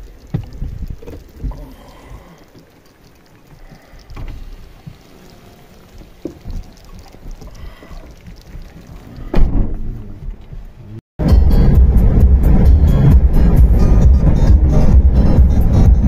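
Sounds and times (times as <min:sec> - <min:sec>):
vehicle interior rumble: 0:03.7 - 0:16.0.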